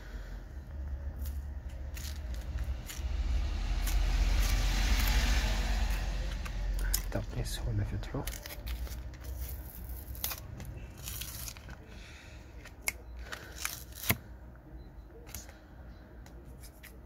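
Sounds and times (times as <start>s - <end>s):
adhesive tearing: 8.1s - 11.9s, 12.6s - 14.3s.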